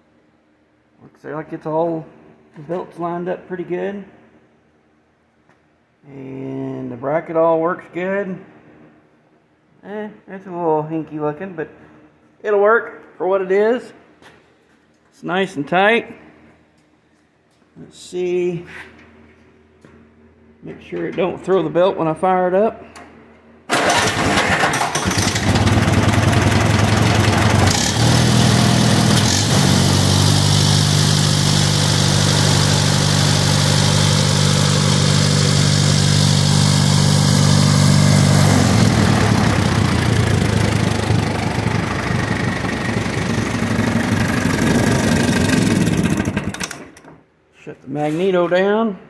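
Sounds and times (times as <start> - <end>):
tractor engine running: 23.7 - 46.9.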